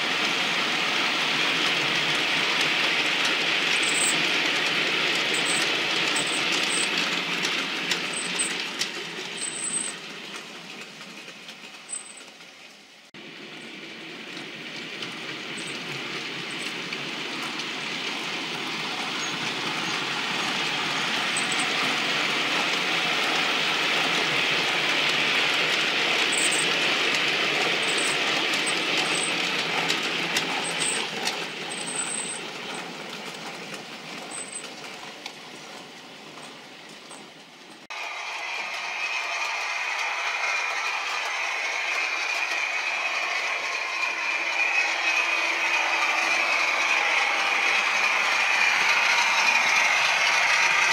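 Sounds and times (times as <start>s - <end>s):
model trains rumbling on track: 0.0s - 50.9s.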